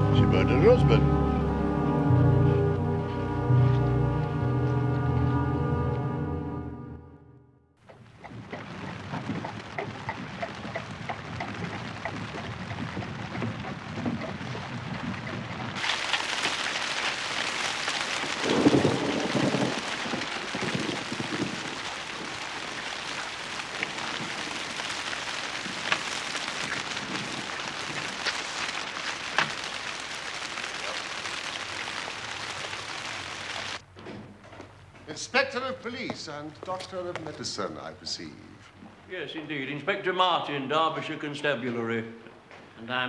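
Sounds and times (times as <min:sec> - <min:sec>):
heavy rain: 0:08.4 - 0:33.8.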